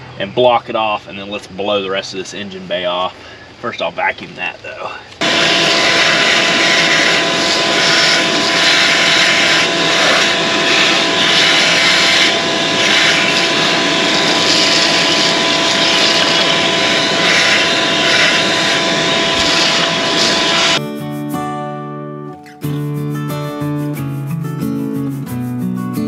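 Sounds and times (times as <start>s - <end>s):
hose sucking leaves: 5.2s - 20.8s
shop vacuum motor whine: 5.2s - 20.8s.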